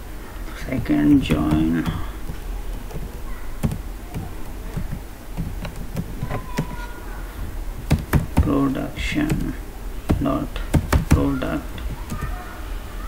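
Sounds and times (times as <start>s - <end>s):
steady low hum: 0.0s - 13.0s
computer keyboard keystrokes: 1.3s - 6.7s, 7.9s - 8.5s, 9.2s - 11.3s.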